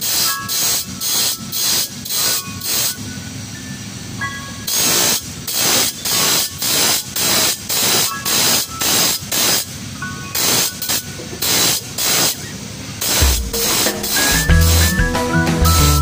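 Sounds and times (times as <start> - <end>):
grinder grinding saw teeth: 0.0 - 3.0, 4.7 - 9.7, 13.0 - 16.0
grinder spinning: 13.0 - 16.0.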